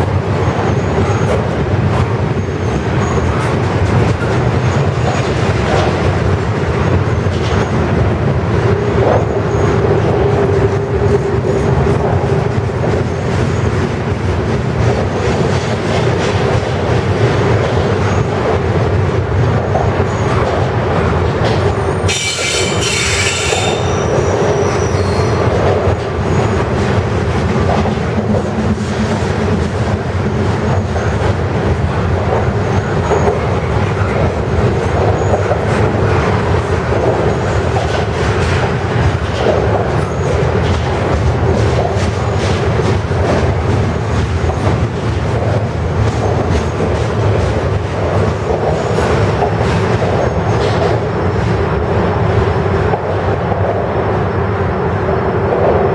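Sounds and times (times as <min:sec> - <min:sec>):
freight train wheels rumbling: 0:00.0 - 0:55.9
faint wheel squeal: 0:22.1 - 0:25.5.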